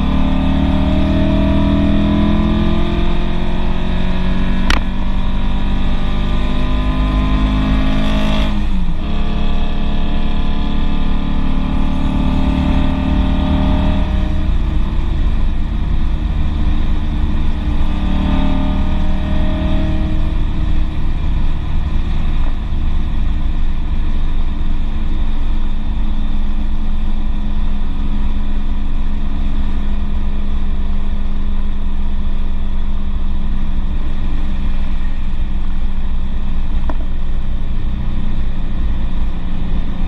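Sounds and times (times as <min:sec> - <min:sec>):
car engine droning: 0:00.0 - 0:40.0
road and wind rush: 0:00.0 - 0:40.0.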